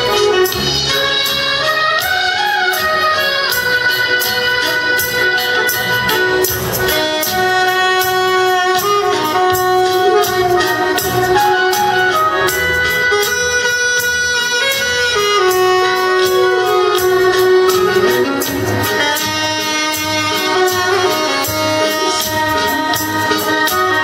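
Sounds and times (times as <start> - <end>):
accordion accompaniment: 0.0 - 24.0
saxophone melody: 0.0 - 24.0
steady beat: 0.0 - 24.0.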